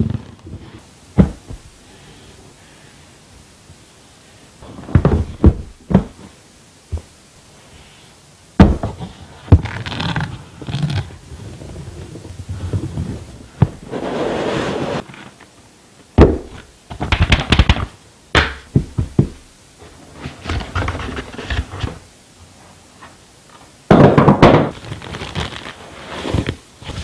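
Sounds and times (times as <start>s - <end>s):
cardboard packaging knocks: 4.8s - 6.2s, 8.6s - 9.8s, 16.2s - 19.4s, 23.9s - 24.8s.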